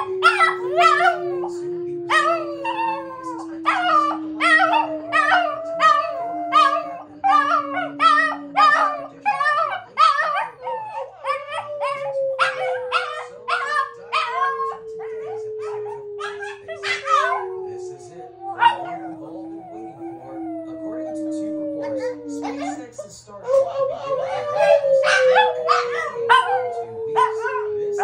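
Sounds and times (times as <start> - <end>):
long steady tone: 0.0 - 9.1, 11.7 - 22.8
dogs howling: 0.0 - 28.0.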